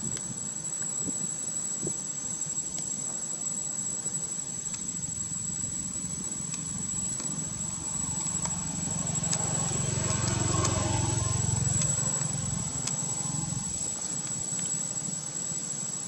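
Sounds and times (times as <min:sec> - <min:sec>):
vehicle engine passing: 0:07.3 - 0:13.8.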